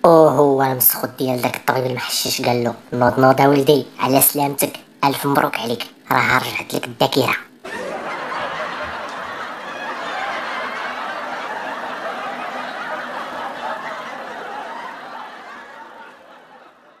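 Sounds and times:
crowd laughing: 7.6 - 17.0.

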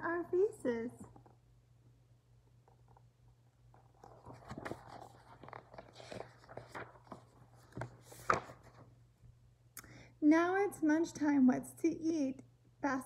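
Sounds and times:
book pages turning: 3.8 - 8.9.

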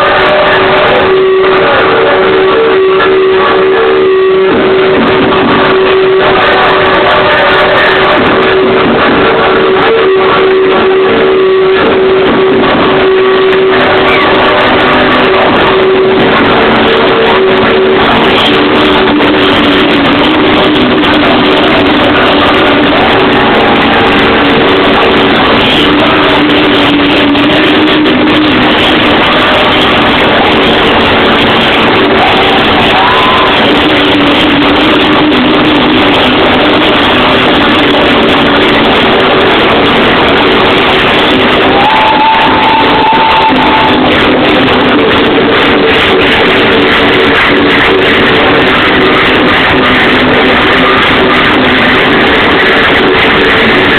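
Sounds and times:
live dance music: 0.0 - 53.9
long held synth notes: 0.0 - 53.9.

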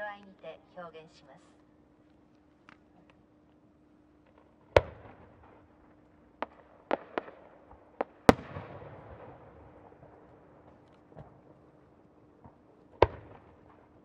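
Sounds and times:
firework bangs echoing: 4.2 - 14.0.

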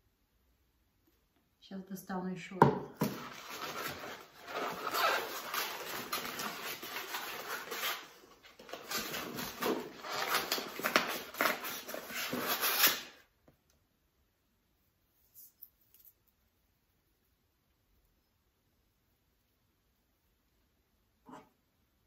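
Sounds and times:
packing material rustling: 3.0 - 13.2.

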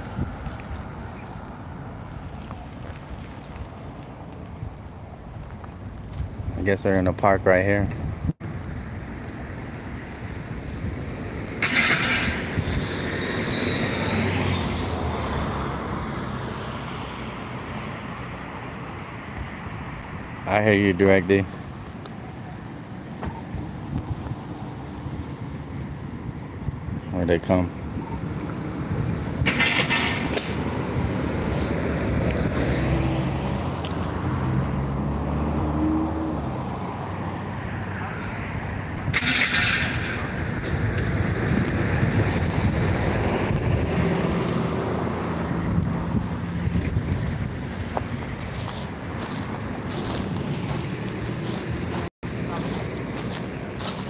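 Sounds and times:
truck driving past: 8.6 - 20.0, 28.2 - 54.0
vehicle passing by: 8.6 - 26.3, 27.4 - 54.0.

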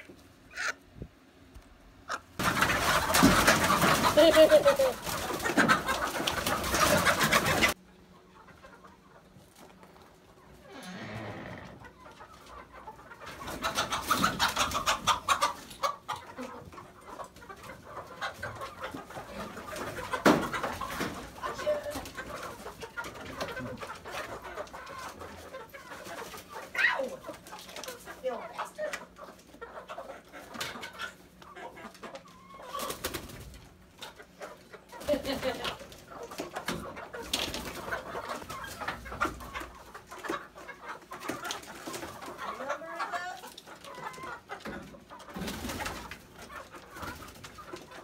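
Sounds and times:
chickens clucking: 0.0 - 48.0
wings flapping: 32.7 - 33.6, 45.3 - 46.2.

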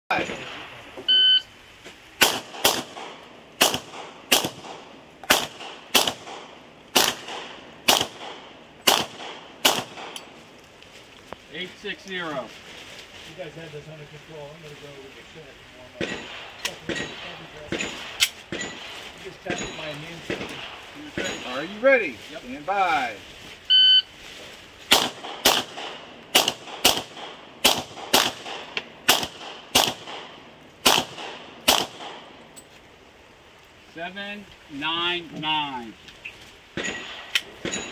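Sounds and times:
pistol shots with short echo: 2.2 - 10.2, 24.9 - 32.2.

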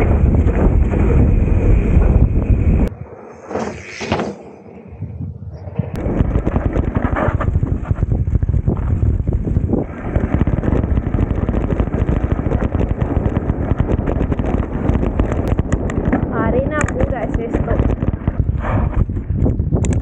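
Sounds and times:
bike rattling and tyres crunching: 0.0 - 2.9, 5.6 - 20.0
wind rushing over microphone: 0.0 - 20.0.

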